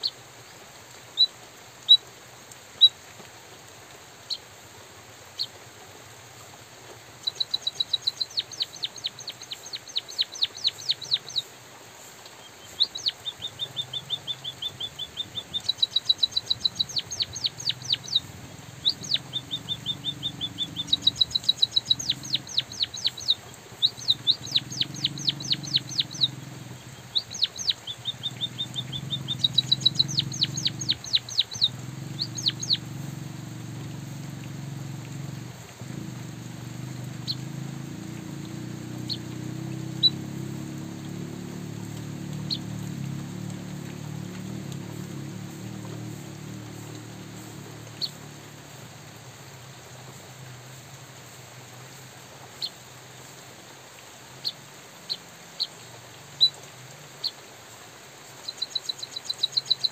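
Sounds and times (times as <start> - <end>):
light drizzle hiss: 0.0 - 59.9
bird singing high ticking notes: 7.2 - 11.5, 12.4 - 50.2, 58.4 - 59.9
bird trills: 12.6 - 32.9.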